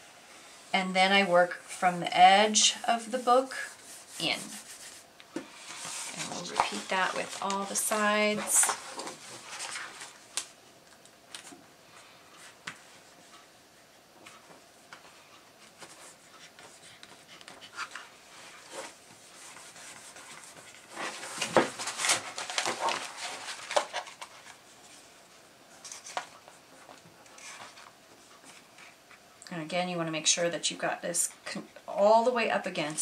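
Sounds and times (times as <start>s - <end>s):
plastic film rustling and crinkling: 3.0s - 10.6s, 17.7s - 25.1s.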